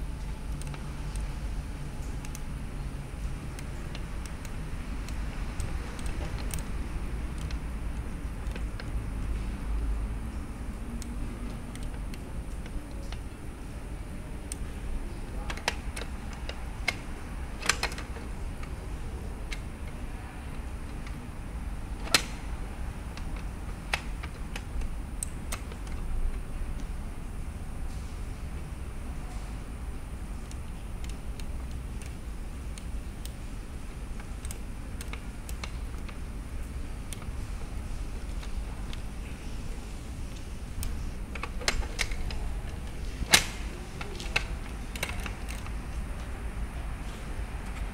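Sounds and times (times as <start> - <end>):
light clicks and taps: 2.0 - 2.5, 3.2 - 13.7, 30.4 - 46.4
metal letterbox door shutting: 41.3 - 45.7
loud lock clack: 41.3 - 45.8.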